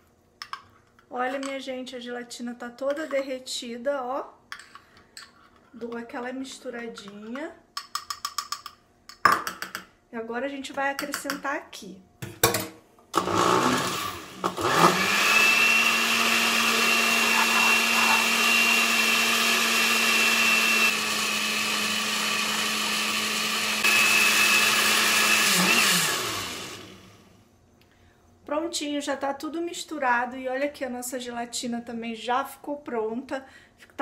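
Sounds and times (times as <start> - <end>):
electric blender motor whining: 13.2 - 27.3.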